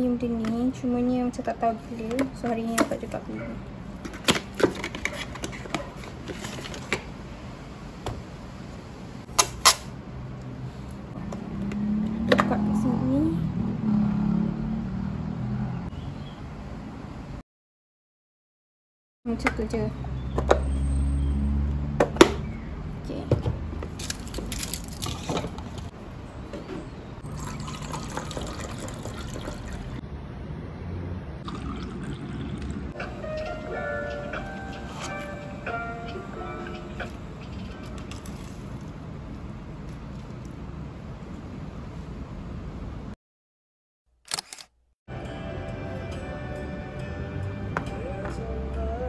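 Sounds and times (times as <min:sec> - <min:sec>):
liquid pouring into a container: 0:27.2 - 0:30.0, 0:31.4 - 0:32.9.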